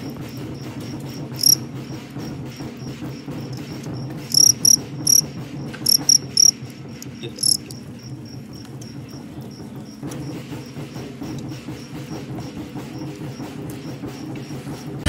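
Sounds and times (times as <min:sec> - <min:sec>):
crickets chirping: 0:01.4 - 0:01.6, 0:04.3 - 0:05.2, 0:05.8 - 0:06.6, 0:07.3 - 0:09.7.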